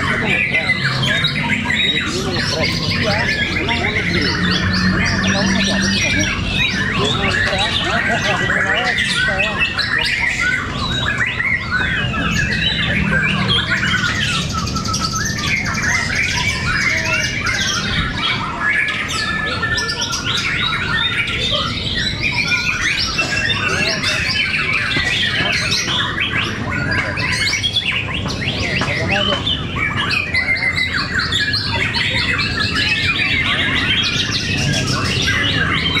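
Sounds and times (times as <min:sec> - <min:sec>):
songbirds singing: 0:00.0 - 0:36.0.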